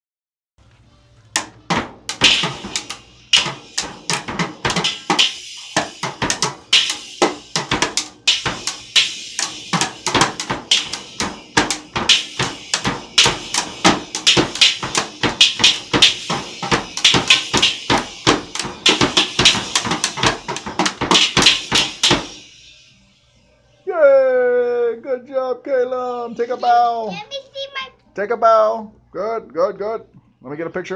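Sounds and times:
toy drum kit banging: 1.3s - 22.8s.

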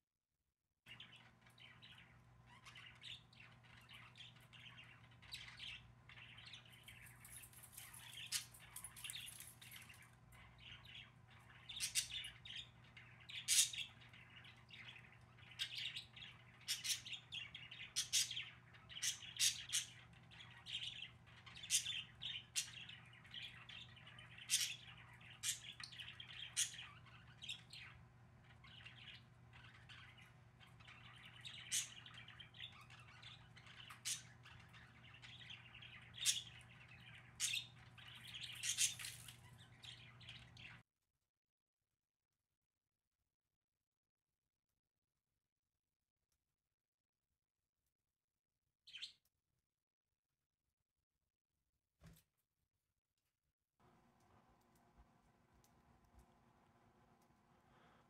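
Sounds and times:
budgerigars chirping: 0.9s - 28.0s, 28.6s - 40.8s.

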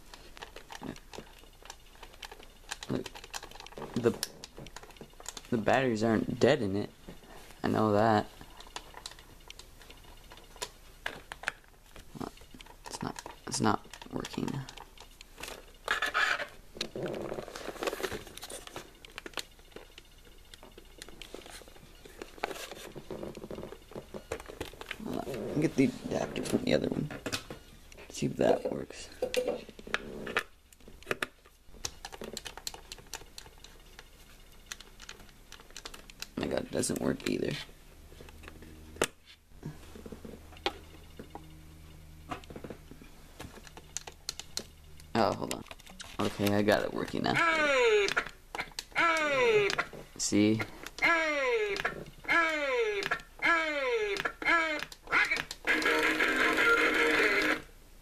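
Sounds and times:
toy handling clicks and knocks: 0.0s - 25.2s, 29.2s - 39.4s, 42.3s - 57.7s
faint low hum: 0.0s - 58.0s
plastic base clicking: 29.3s - 37.4s.

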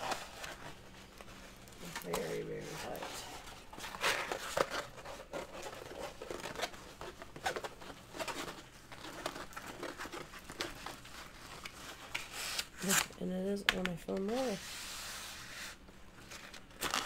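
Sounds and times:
plastic-covered canvas crinkling: 0.0s - 13.0s.

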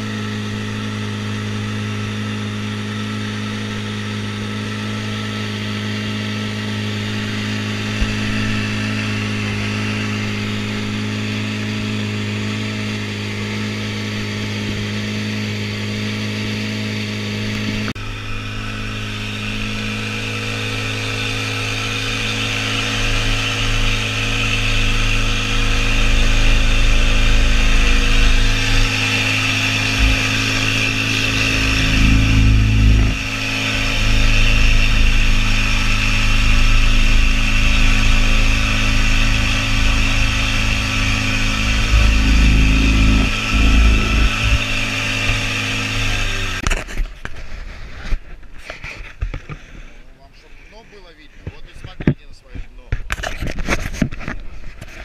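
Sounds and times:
outboard motor running: 0.0s - 55.0s
low rumble: 17.8s - 46.6s.

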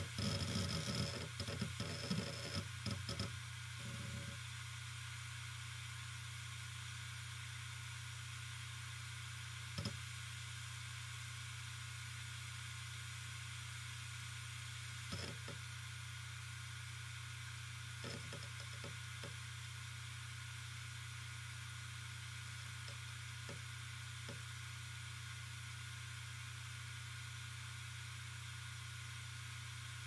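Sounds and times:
hard drive humming: 0.0s - 4.6s, 9.7s - 10.0s, 15.0s - 15.8s, 17.5s - 19.5s.

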